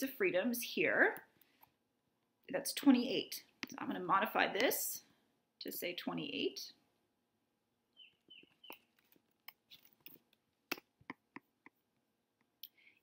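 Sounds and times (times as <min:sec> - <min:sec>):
small high chirps: 0:07.9 - 0:09.8.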